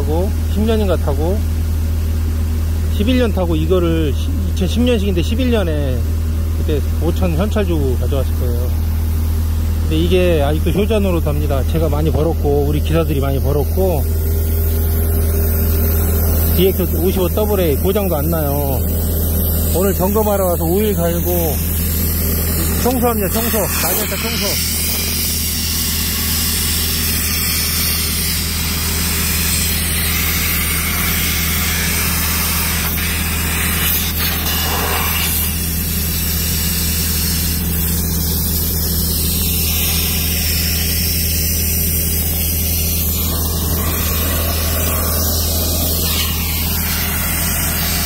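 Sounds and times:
engine idling: 0.0 - 48.0
compressed air blow gun hissing: 18.5 - 48.0.

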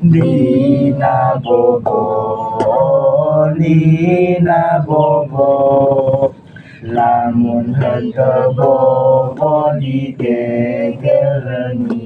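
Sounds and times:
short breaths: 6.4 - 6.9.

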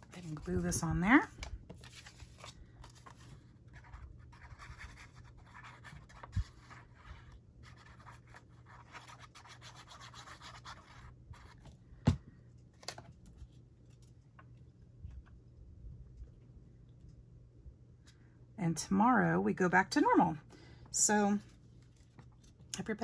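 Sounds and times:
paper scratching and rubbing: 1.8 - 11.6.

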